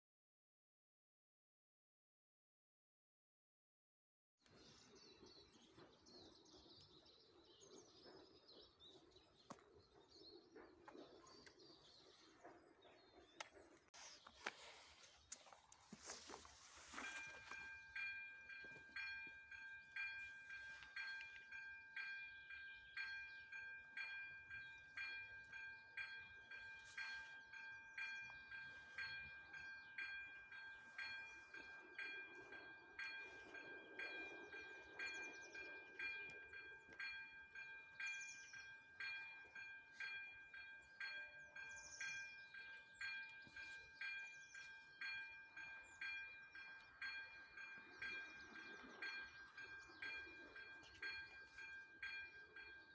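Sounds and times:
level crossing warning bell ringing: 0:16.7 - 0:52.9.

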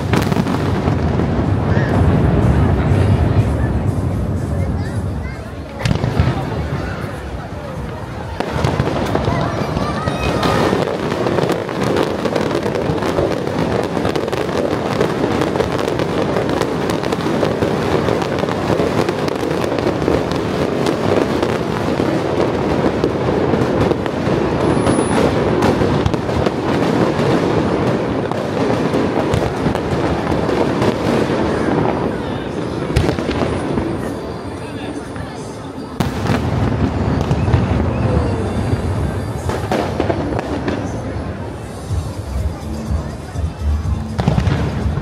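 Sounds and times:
fireworks bangs and crackles: 0:00.0 - 0:45.0.

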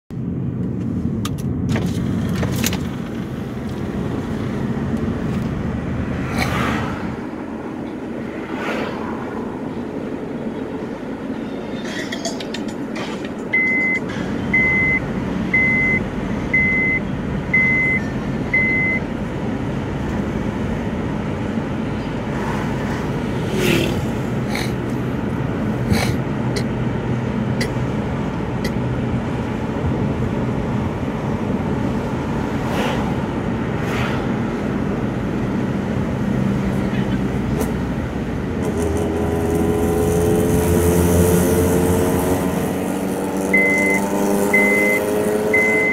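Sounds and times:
car engine: 0:00.1 - 0:45.9
road noise: 0:00.1 - 0:45.9
short high electronic beeps: 0:43.6 - 0:45.9.

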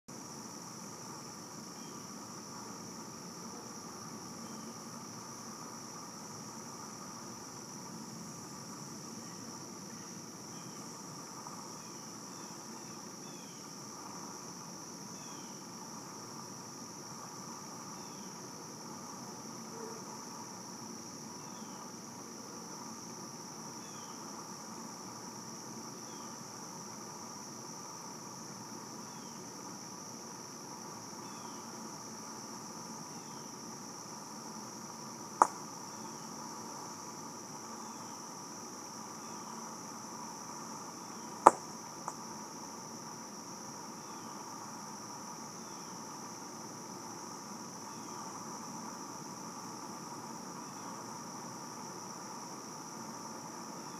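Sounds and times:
high-pitched insect chorus: 0:00.1 - 0:53.9
sharp pops: 0:35.4 - 0:35.6, 0:41.5 - 0:42.2.

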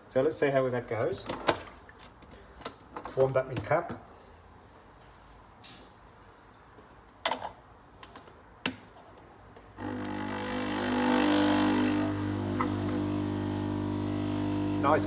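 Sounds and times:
espresso machine pump buzzing: 0:09.8 - 0:15.0
coffee brewing hiss: 0:11.3 - 0:15.0.

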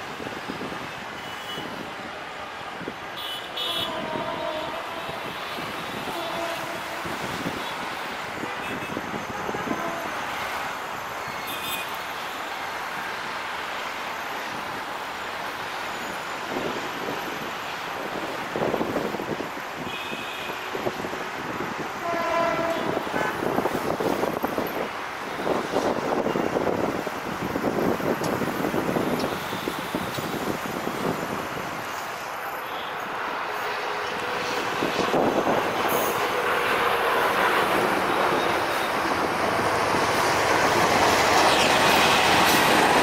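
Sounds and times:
city traffic noise: 0:00.0 - 0:43.0
car horn toots: 0:03.2 - 0:05.2, 0:22.0 - 0:23.5
approaching train rumble: 0:03.8 - 0:08.3, 0:20.8 - 0:26.2, 0:30.5 - 0:43.0.

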